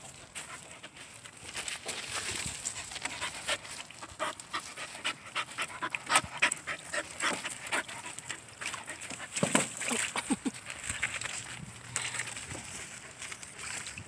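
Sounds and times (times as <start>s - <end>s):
puppies panting: 0.0s - 1.4s, 2.5s - 10.5s
water splashing: 1.9s - 14.0s.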